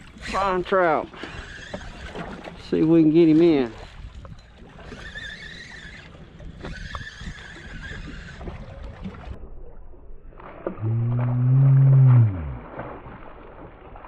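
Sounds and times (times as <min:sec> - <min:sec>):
fishing reel whining: 0:00.1 - 0:02.3, 0:04.8 - 0:08.8
wind noise on microphone: 0:03.8 - 0:09.4.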